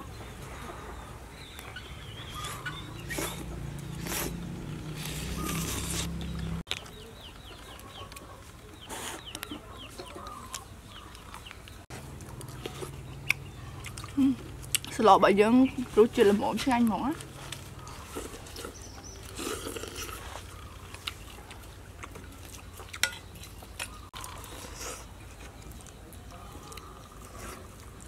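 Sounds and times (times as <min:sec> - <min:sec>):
chickens clucking: 0:00.0 - 0:14.6.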